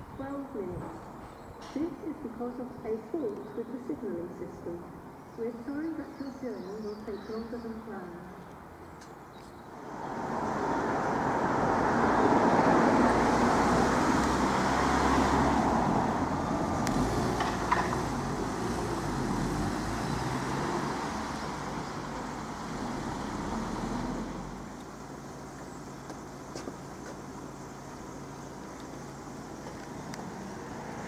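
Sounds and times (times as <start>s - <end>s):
vehicle passing by: 9.8s - 25.2s, 29.4s - 31.0s.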